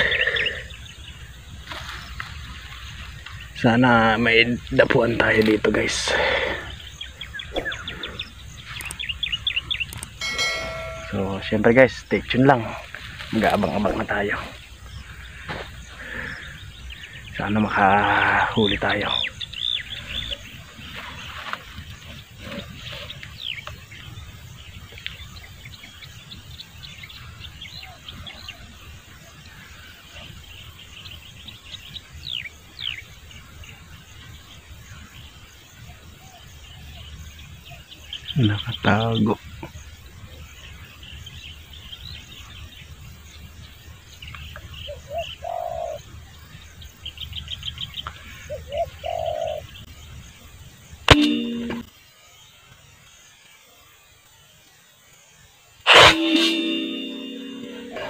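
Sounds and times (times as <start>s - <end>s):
small birds chirping: 0.0s - 58.0s
dove cooing: 44.9s - 46.0s, 48.5s - 49.7s.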